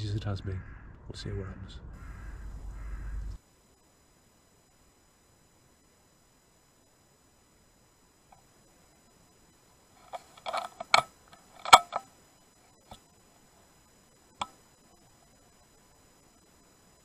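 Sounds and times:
sharp clicks and knocks: 0:10.0 - 0:12.1.

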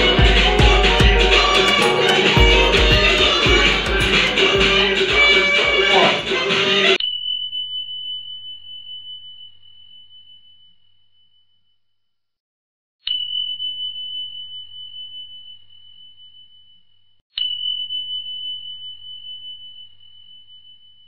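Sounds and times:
high bell-like ding: 0:00.0 - 0:05.0.

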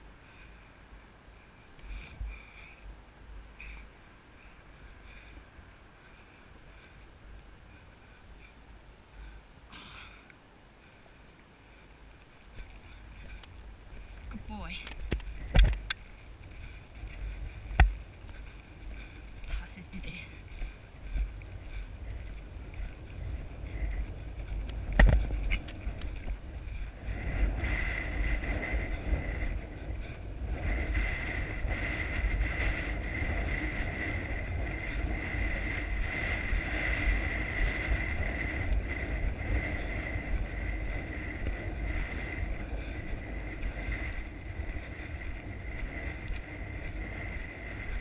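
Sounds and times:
wind rushing over microphone: 0:10.8 - 0:48.0
horse cantering on grass: 0:11.4 - 0:48.0.

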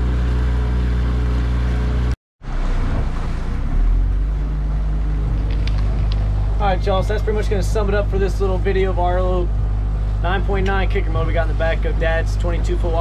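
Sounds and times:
outboard motor running: 0:00.0 - 0:13.0
water rushing in the wake: 0:02.4 - 0:05.2.

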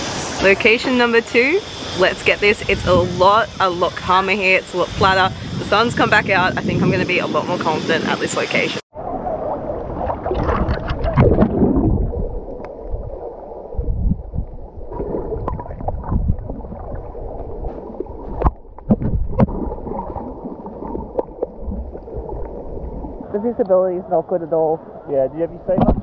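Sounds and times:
water splashing: 0:08.3 - 0:26.0
muffled underwater sloshing: 0:08.9 - 0:26.0
low rumble: 0:09.0 - 0:23.6.

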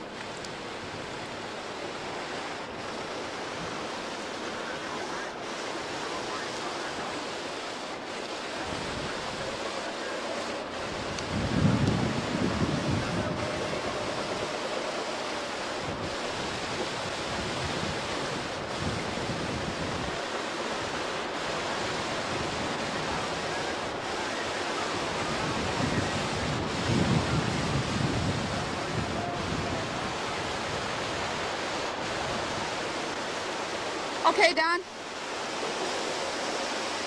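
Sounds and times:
wind and sea water rushing: 0:00.0 - 0:37.0
wind buffeting the microphone: 0:08.5 - 0:34.3.

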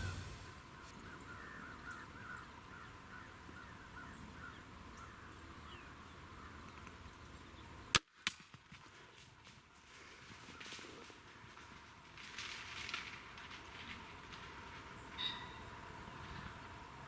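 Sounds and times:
faint woods ambience: 0:00.0 - 0:17.0.

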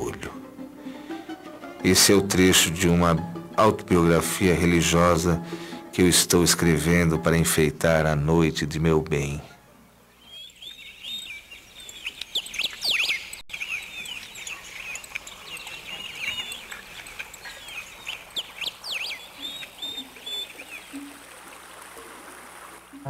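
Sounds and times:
birds chirping: 0:08.3 - 0:23.0.

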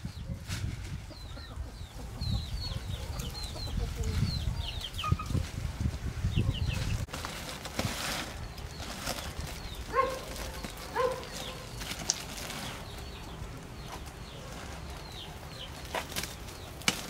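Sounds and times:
farm animals calling: 0:01.0 - 0:05.5, 0:08.4 - 0:16.8.

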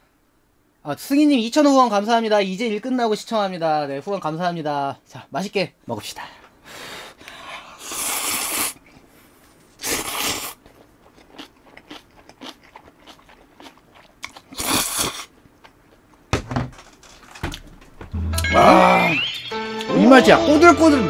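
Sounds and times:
slurping noodles: 0:07.8 - 0:08.8, 0:09.8 - 0:10.6, 0:14.5 - 0:15.3
chewing and crunching: 0:10.0 - 0:16.2.

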